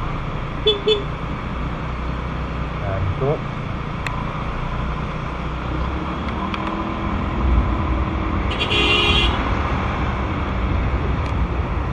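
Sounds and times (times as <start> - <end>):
vehicle horn beep: 0.6 - 1.1, 8.5 - 9.4
wind rumble: 5.6 - 11.9.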